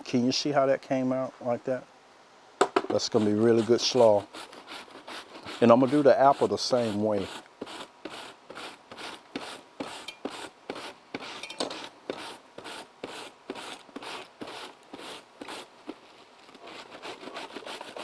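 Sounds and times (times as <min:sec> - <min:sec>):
apple shredded on mandoline: 0:02.9 - 0:15.7.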